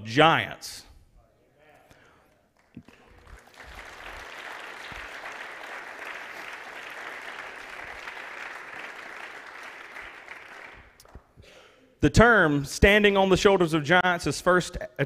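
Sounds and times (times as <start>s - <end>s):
congregation applauding: 2.4s - 11.3s.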